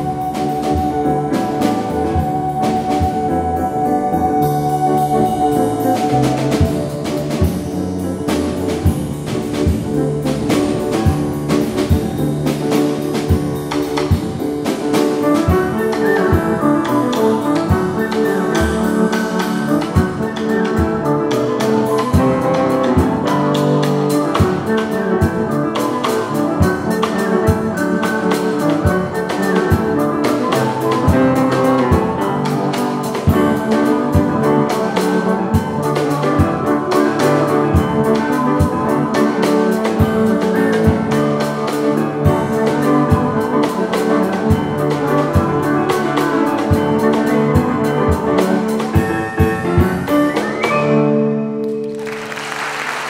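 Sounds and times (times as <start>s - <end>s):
steady drum hits: 0.0s - 21.1s
small folk band playing: 0.0s - 53.0s.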